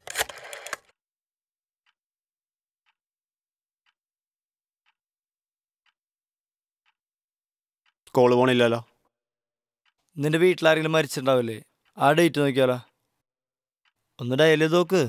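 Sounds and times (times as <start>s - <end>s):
rotary telephone dial whirring: 0.0s - 0.9s
faint clock-like ticking: 1.8s - 2.0s, 3.8s - 4.0s, 5.8s - 6.0s, 7.8s - 9.1s, 9.8s - 13.2s, 13.8s - 15.0s.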